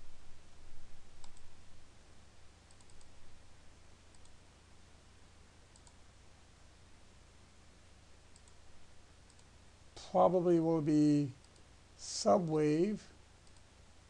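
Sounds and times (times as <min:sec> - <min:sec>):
steady low hum: 0:00.0 - 0:14.0
computer mouse clicks: 0:01.2 - 0:01.5, 0:02.7 - 0:03.2, 0:04.1 - 0:04.4, 0:05.7 - 0:06.0, 0:08.3 - 0:08.6, 0:09.2 - 0:09.5, 0:11.4 - 0:11.7, 0:13.4 - 0:13.7.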